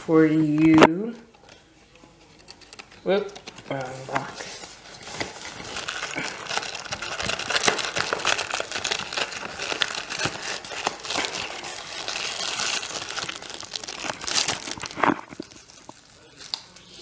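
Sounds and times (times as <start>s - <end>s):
cardboard box and wrappers rustling: 3.4s - 17.0s.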